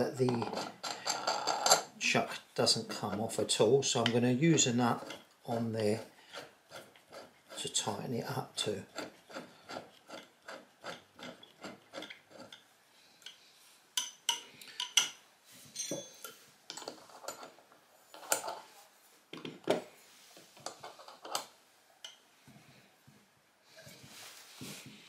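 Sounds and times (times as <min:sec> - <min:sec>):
nut rasping along threaded rod: 0:04.0 - 0:08.0, 0:08.8 - 0:12.6.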